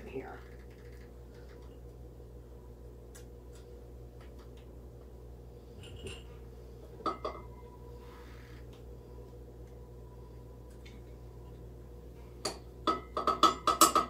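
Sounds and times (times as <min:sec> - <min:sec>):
low steady hum: 0:00.0 - 0:14.0
soft scrape: 0:07.9 - 0:08.6.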